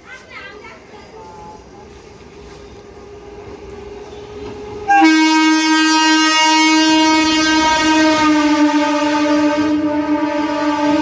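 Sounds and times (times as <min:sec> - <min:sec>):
train running through station: 0:00.0 - 0:11.0
long train horn blast: 0:04.7 - 0:11.0.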